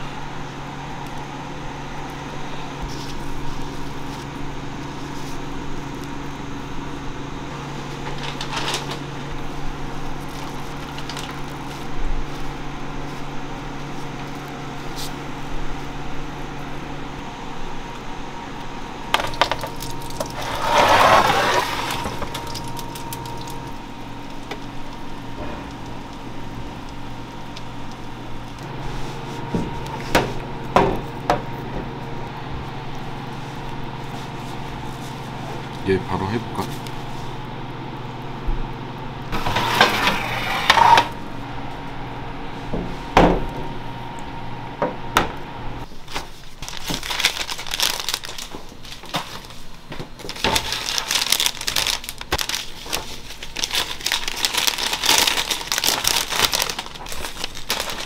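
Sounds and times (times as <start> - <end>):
kitchen machine hum: 0.0 - 58.0
sesame seeds rustling and scraping: 2.8 - 6.4, 7.7 - 15.7, 19.2 - 30.1, 32.8 - 37.4, 45.8 - 58.0.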